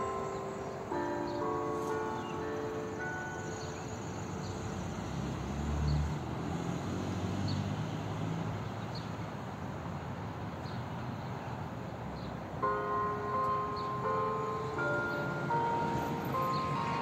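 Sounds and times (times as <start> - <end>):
church bell tones: 0.0 - 5.5, 12.6 - 17.0
vehicle passing: 0.0 - 10.4, 12.8 - 17.0
outdoor background noise: 0.0 - 17.0.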